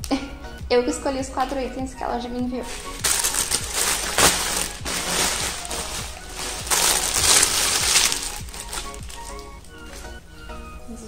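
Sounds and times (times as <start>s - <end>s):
plastic bag crinkling: 2.6s - 10.3s.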